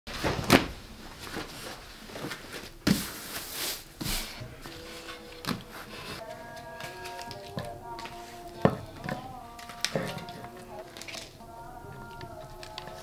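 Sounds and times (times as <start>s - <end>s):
faint music: 4.0s - 13.0s.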